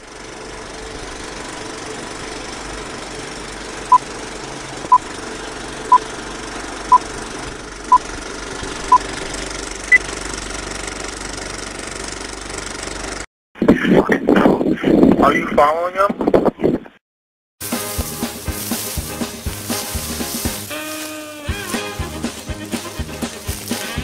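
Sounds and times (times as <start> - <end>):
film projector whirring: 0.0 - 13.2.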